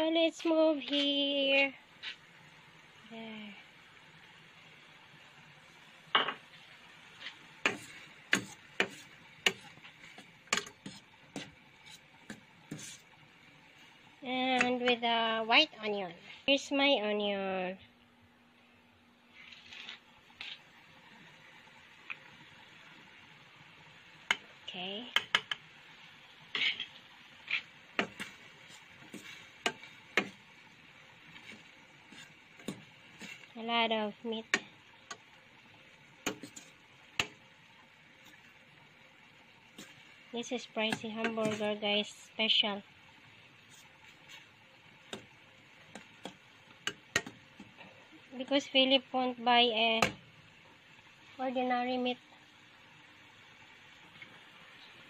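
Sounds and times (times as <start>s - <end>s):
metal spoon scraping frying pan: 7.2s - 13.1s, 26.5s - 30.5s, 31.3s - 33.5s, 36.2s - 37.4s, 40.6s - 41.8s.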